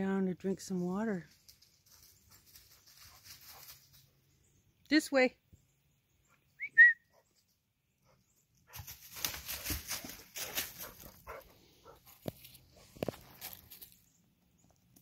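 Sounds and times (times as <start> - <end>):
footsteps in dry leaves: 8.7 - 14.2
leaves crunching and rustling: 8.8 - 11.2, 12.2 - 14.1.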